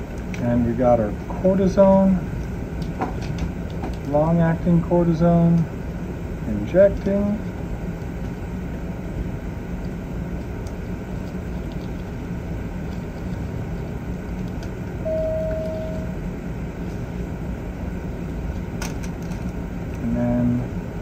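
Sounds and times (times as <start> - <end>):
machinery hum and hiss: 0.0 - 21.0
steady electronic tone: 15.0 - 16.2.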